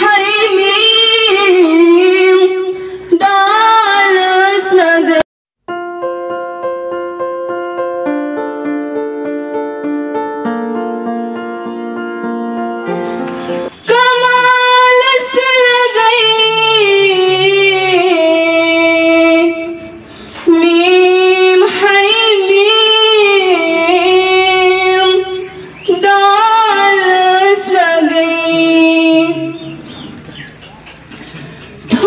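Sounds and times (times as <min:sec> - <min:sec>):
girl singing devotional song: 0:00.0 - 0:05.8, 0:13.7 - 0:29.8
electronic keyboard chords: 0:05.7 - 0:13.8.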